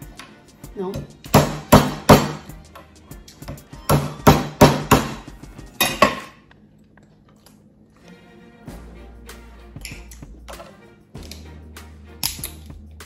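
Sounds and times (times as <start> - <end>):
knife whacking shells on wooden board: 1.0 - 2.5, 3.4 - 6.3.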